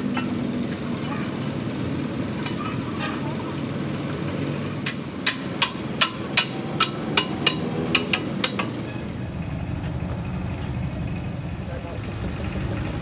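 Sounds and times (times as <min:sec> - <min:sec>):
hammer striking metal: 0:04.8 - 0:08.8.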